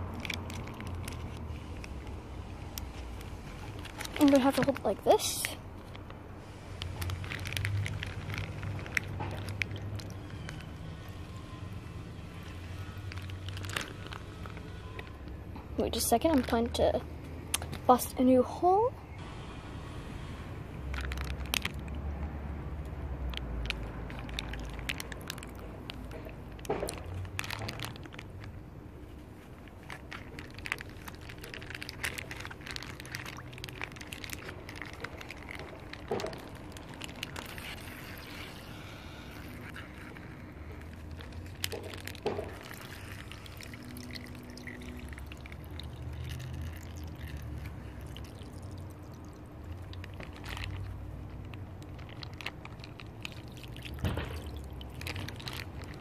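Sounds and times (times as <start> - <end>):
water trickling into a foam box: 0.0 - 11.4, 20.8 - 56.0
plastic bag handling noises: 0.0 - 17.0, 20.8 - 22.1, 23.0 - 56.0.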